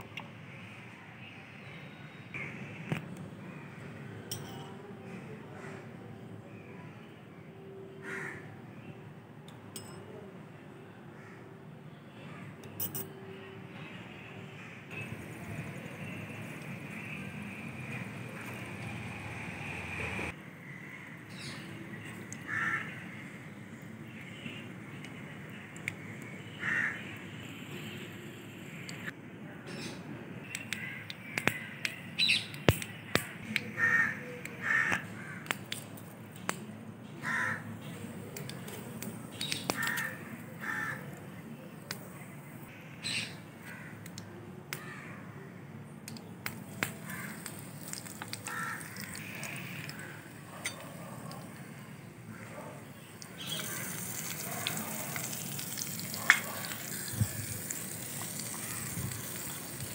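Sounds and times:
crows cawing: 2.4 - 4.0, 8.0 - 8.6, 20.5 - 21.6, 22.2 - 23.6, 25.9 - 27.1, 30.8 - 31.9, 33.6 - 35.6, 37.2 - 37.7, 39.6 - 41.1, 43.1 - 44.1, 44.8 - 45.5, 46.9 - 59.8
food sizzling in hot oil: 47.0 - 50.0, 53.2 - 59.9.

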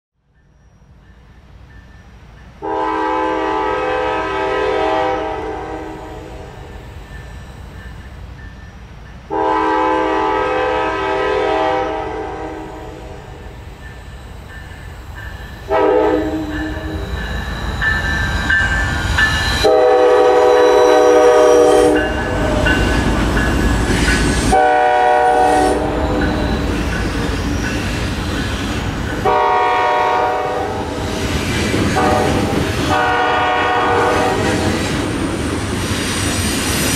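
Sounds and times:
locomotive horn blasts: 2.6 - 6.4, 9.3 - 13.2, 15.7 - 17.1, 19.6 - 22.8, 24.5 - 26.4, 29.2 - 30.9, 32.0 - 34.7
train wheels clattering: 13.7 - 36.9.

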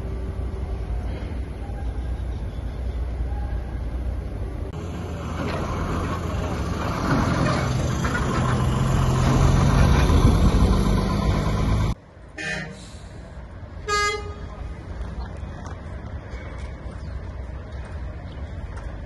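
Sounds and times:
truck engine driving past: 0.0 - 13.5
horn toot: 12.4 - 13.0.

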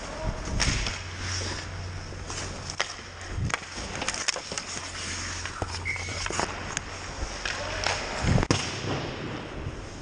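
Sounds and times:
hockey sticks and puck clacking: 0.0 - 9.6
low rink hum: 0.0 - 10.0
skate blades scraping ice: 0.6 - 8.5.

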